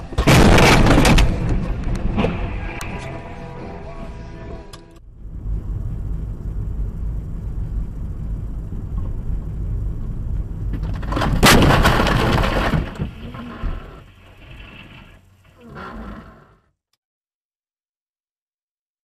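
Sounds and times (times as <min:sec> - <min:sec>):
car collision crash: 0:00.0 - 0:03.2, 0:10.7 - 0:15.2
car road rumble: 0:00.0 - 0:16.2.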